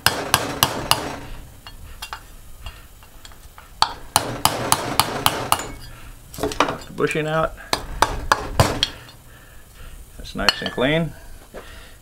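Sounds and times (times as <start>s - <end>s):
hammer striking metal punch: 3.8s - 6.8s.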